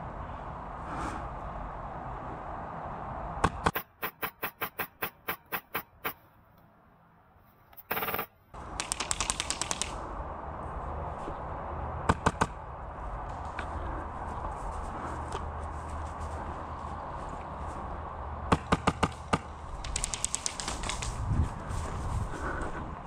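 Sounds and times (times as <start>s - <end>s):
airsoft gun shots: 3.4s - 6.2s, 7.8s - 10.0s.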